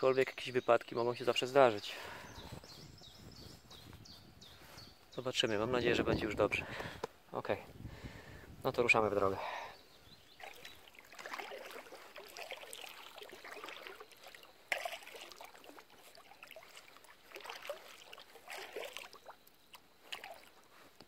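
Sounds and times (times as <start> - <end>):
paddle splashing in water: 10.4 - 20.6.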